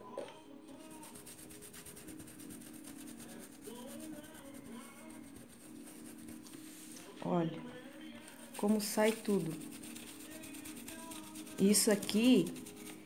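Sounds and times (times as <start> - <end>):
paintbrush scrubbing on plastic: 0.7 - 13.0.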